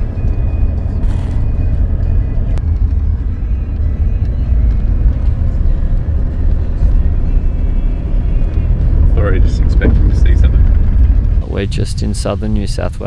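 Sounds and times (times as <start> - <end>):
vehicle engine and tyres rumbling: 0.0 - 13.0.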